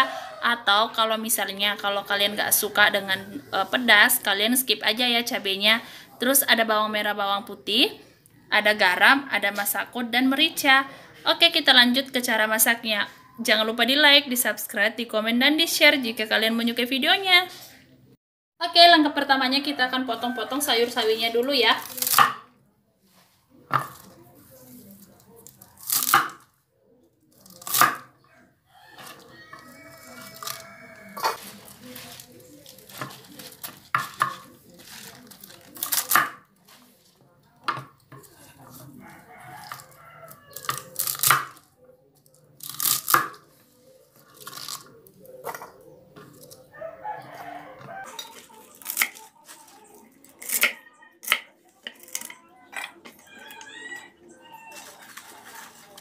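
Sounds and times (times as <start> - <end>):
handling of greens: 28.8 - 37.3.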